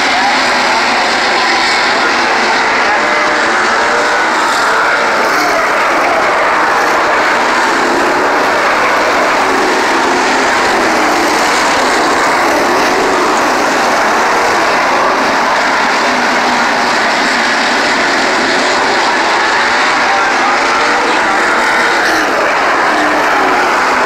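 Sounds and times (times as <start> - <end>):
race car engines roaring: 0.0 - 24.0.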